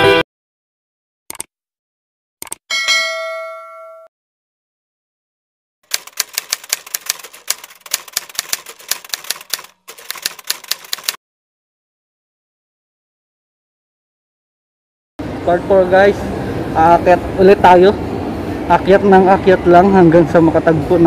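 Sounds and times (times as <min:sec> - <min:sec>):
bright bell ding: 0:02.7 - 0:04.1
typewriter key clatter: 0:05.9 - 0:11.2.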